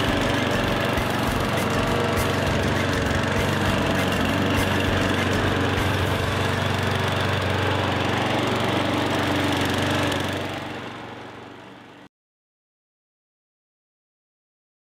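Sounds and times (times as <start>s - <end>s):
lawn mower engine running: 0.0s - 12.1s.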